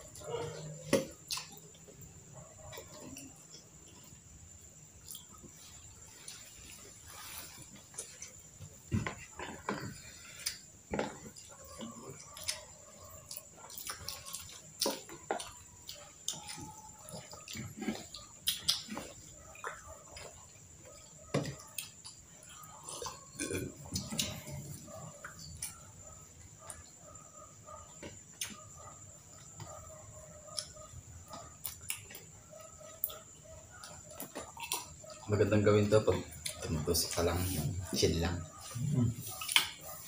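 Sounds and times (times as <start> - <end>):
chewing and mouth smacks: 0.9 - 1.9, 9.2 - 25.9, 30.5 - 35.3, 39.3 - 40.0.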